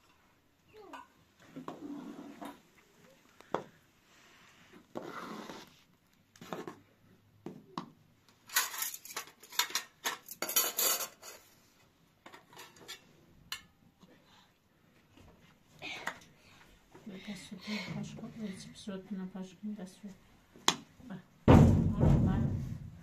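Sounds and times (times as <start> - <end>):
spoons and steel plates clinking: 8.5 - 11.5.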